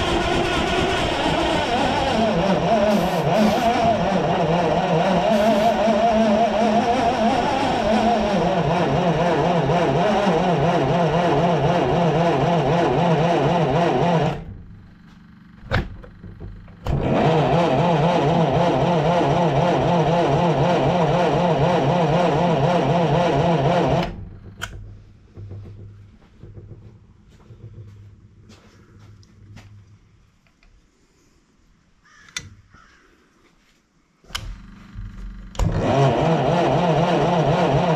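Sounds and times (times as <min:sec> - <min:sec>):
engine cranking without starting: 0:00.0 - 0:30.5, 0:34.2 - 0:37.9
sharp clicks: 0:32.2 - 0:32.6.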